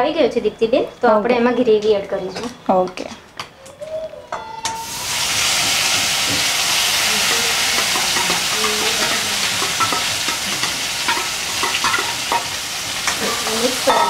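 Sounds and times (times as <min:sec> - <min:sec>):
gravy sizzling in hot oil: 0:04.8 - 0:14.0.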